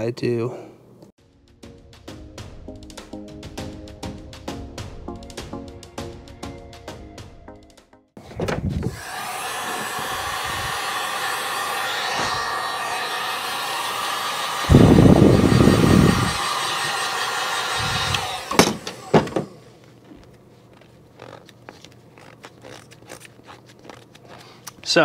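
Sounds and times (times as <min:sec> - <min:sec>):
heat gun fan whirring: 0:08.2 - 0:25.0
low rush of air: 0:09.8 - 0:18.4.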